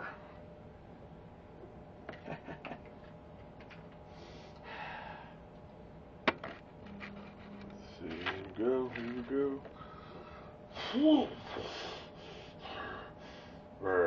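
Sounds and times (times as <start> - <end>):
man breathing: 4.1 - 5.5, 9.7 - 13.7
low hummed note: 6.8 - 10.5.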